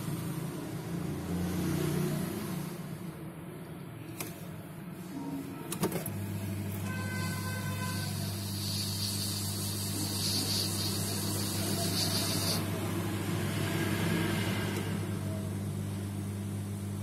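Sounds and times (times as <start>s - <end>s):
hiss: 7.9s - 12.7s.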